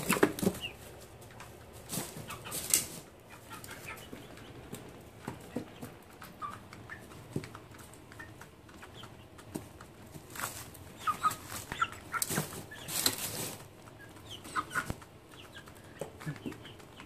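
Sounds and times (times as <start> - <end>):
chicks chirping and clucking: 0.0 - 17.0
pecking and scratching in shavings: 0.0 - 17.0.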